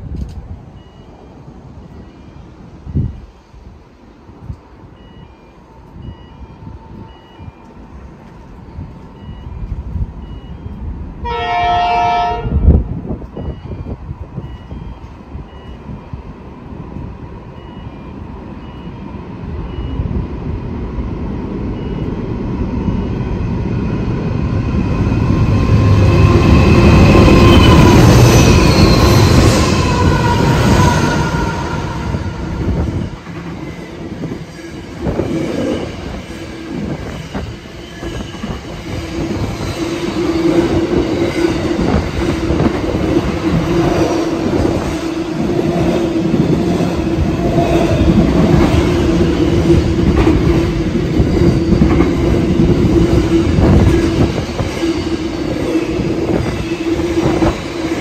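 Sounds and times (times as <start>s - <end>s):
train horn blast: 11.2s - 12.8s
locomotive engine and wheel noise: 12.6s - 58.0s.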